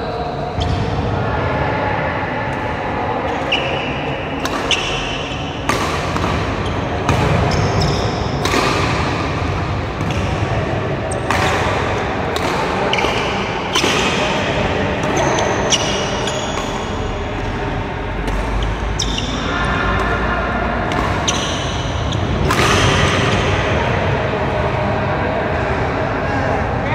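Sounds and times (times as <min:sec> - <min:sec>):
rackets striking shuttlecock: 0:04.4 - 0:17.6, 0:18.2 - 0:20.2, 0:20.8 - 0:23.5.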